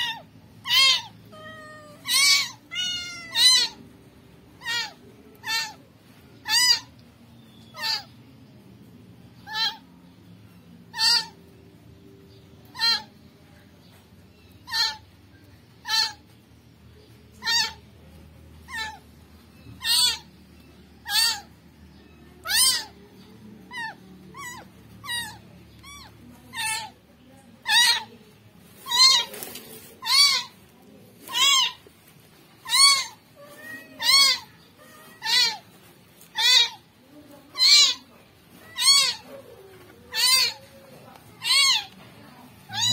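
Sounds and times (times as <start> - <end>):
kitten meowing: 0.0 - 3.8, 21.0 - 21.5, 22.4 - 22.9, 32.6 - 35.6, 38.6 - 39.3, 42.7 - 42.9.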